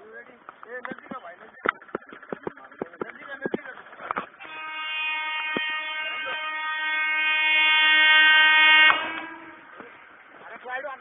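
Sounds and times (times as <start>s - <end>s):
train horn blast: 4.4s - 10.1s.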